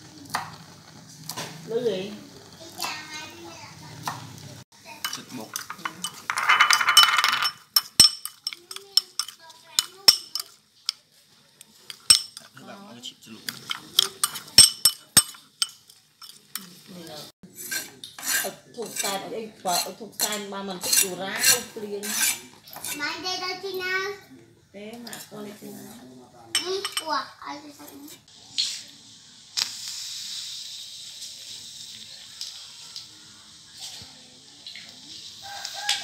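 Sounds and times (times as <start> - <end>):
knife clinking against ceramic bowl: 5.0 - 11.0, 11.9 - 12.5, 13.6 - 16.7, 26.6 - 27.1.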